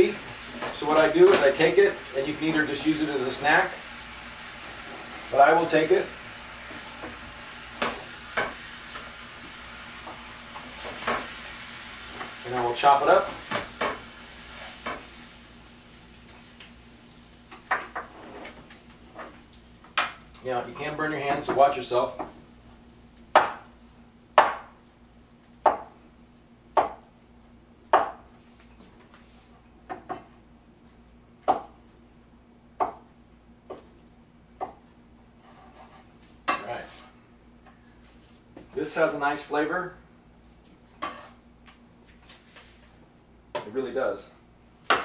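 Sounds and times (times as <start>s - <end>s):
food sizzling in frying pan: 0.0s - 20.3s
knife chopping on wooden board: 23.3s - 23.7s, 24.4s - 24.7s, 25.6s - 26.0s, 26.8s - 27.0s, 27.9s - 28.3s.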